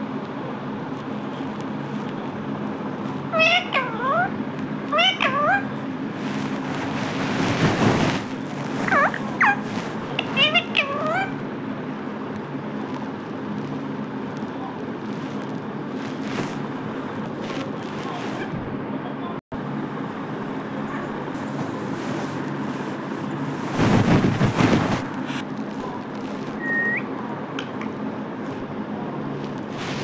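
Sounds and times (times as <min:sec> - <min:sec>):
steady low hum: 0:00.0 - 0:30.0
parakeet calls: 0:03.2 - 0:05.9, 0:08.7 - 0:11.5, 0:26.6 - 0:27.1.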